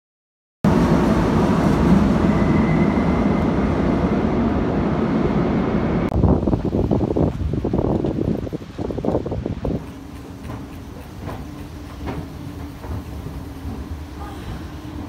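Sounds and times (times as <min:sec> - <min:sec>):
train rumbling past: 0:00.7 - 0:15.0
wind buffeting microphone: 0:04.4 - 0:14.1.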